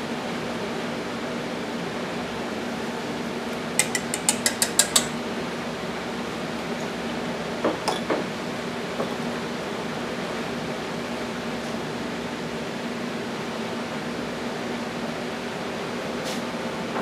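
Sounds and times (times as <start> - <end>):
whisk tapping metal bowl: 3.8 - 5.2.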